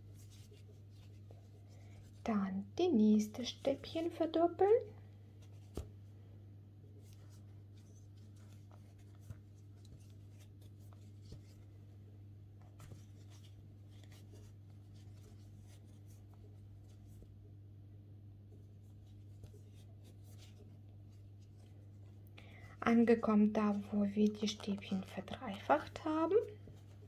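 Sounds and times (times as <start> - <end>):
crochet hook rustling yarn: 0.0 - 2.3, 6.8 - 12.0, 12.6 - 17.5, 18.5 - 22.2, 23.5 - 27.0.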